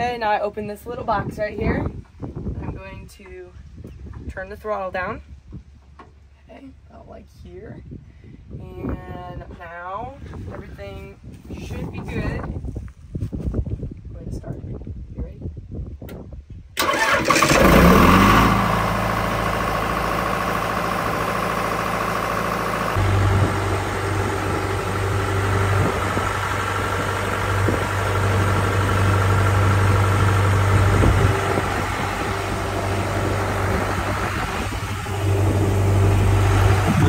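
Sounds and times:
diesel engine running: 16.8 - 37.0.

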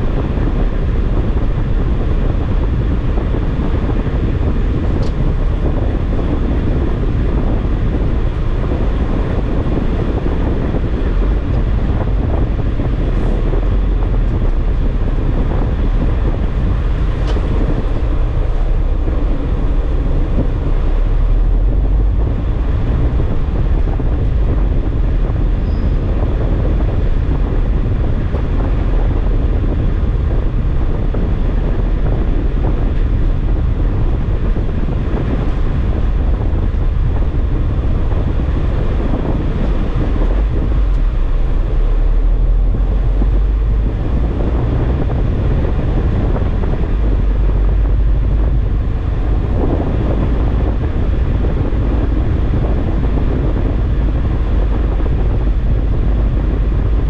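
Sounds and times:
car engine and tyre noise: 0.0 - 57.0
wind buffeting microphone: 0.0 - 57.0.

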